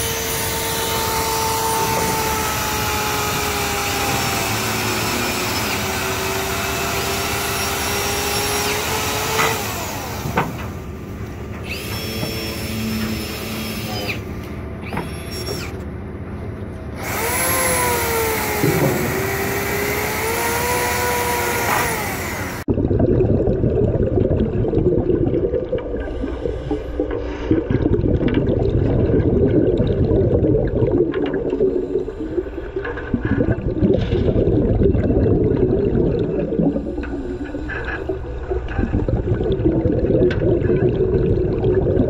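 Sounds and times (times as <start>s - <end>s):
chainsaw cutting: 0.0s - 10.6s, 17.0s - 22.7s
exhaled bubbles: 22.4s - 42.0s.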